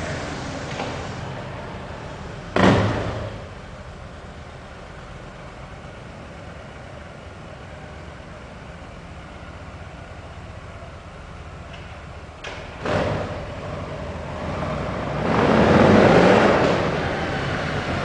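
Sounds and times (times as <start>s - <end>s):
motorcycle engine idling: 3.5s - 12.8s.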